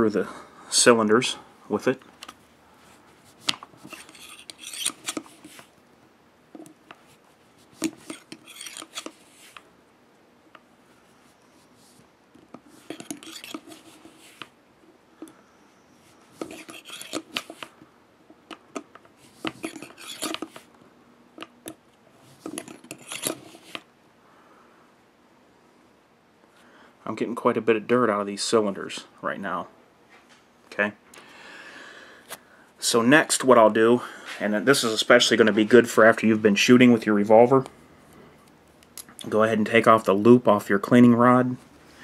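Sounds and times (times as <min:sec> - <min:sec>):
cleaning rod scraping in revolver cylinder: 0:03.8 - 0:05.7, 0:07.8 - 0:09.6, 0:12.8 - 0:14.5, 0:16.4 - 0:17.7, 0:19.5 - 0:20.6, 0:22.5 - 0:23.7.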